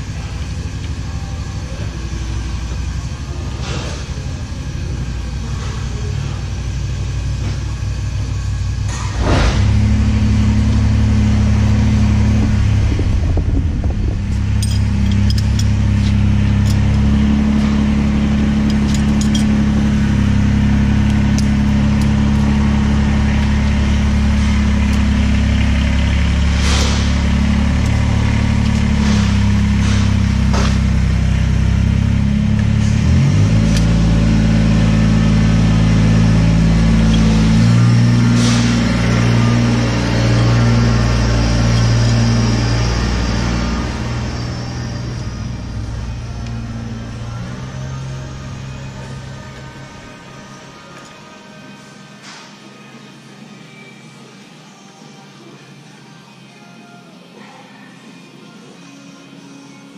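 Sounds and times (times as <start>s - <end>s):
tractor diesel engine running: 0.0s - 51.6s.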